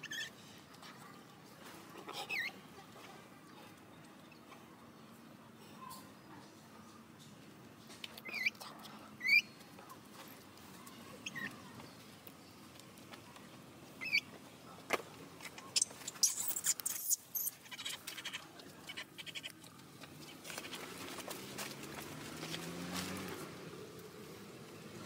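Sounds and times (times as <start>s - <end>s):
infant monkey squeaking: 0.0s - 0.4s, 2.2s - 2.6s, 8.2s - 8.6s, 9.2s - 9.5s, 11.2s - 11.6s, 14.0s - 14.3s, 15.6s - 19.6s
rustling and pattering on leaves: 14.4s - 24.2s.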